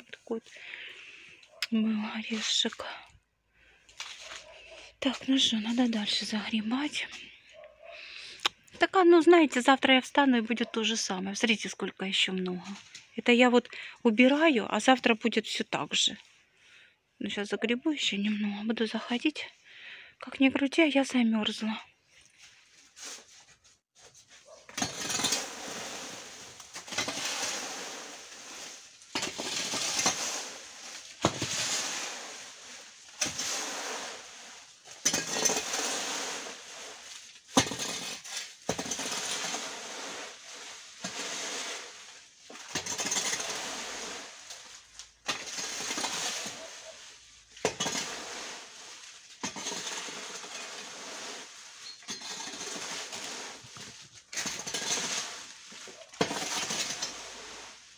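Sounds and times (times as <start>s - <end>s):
rake tines scraping on concrete: 3.9s - 6.2s, 22.3s - 57.9s
rustling dry leaves: 24.0s - 57.9s.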